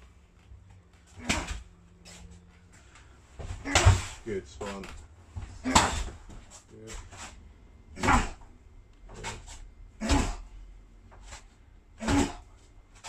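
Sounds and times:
hard strikes landing: 3.4 - 4.8, 5.4 - 6.4, 8.0 - 8.5, 9.2 - 10.5, 12.0 - 12.6
sharp grunts and exhales: 8.0 - 8.5, 9.1 - 10.6, 12.0 - 12.6.

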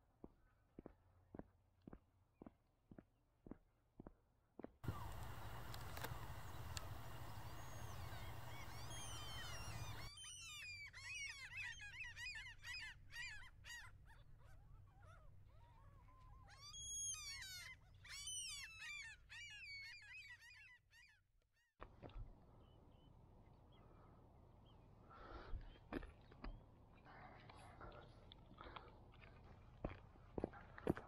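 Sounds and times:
flock of birds calling: 4.8 - 13.9.

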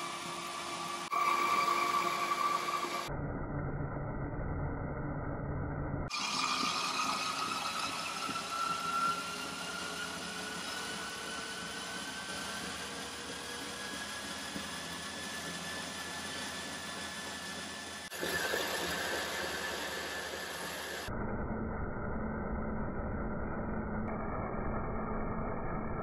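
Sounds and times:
model propeller whirring: 0.0 - 3.1, 6.1 - 21.1
treadmill motor whine: 0.0 - 26.0.

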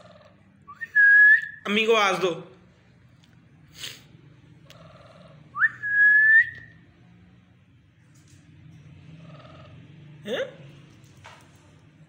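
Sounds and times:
faint soft bird chattering: 4.6 - 5.6.

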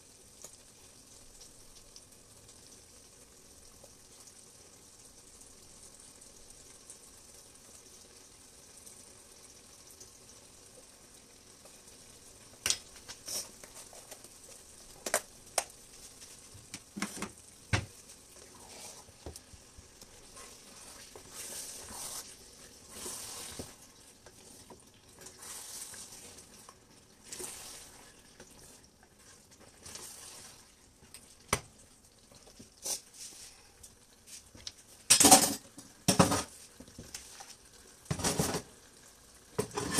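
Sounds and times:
stew sizzling in a pot: 0.0 - 39.9
spatula scraping through stew: 18.4 - 19.3, 20.0 - 30.8.

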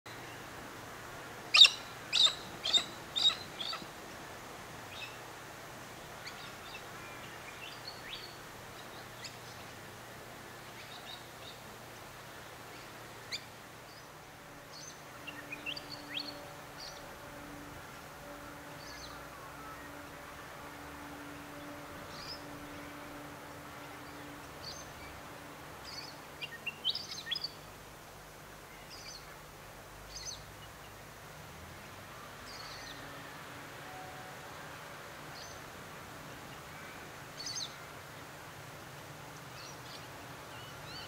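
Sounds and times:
faint steady background hum: 0.1 - 41.0
birds calling harshly: 1.5 - 3.9.

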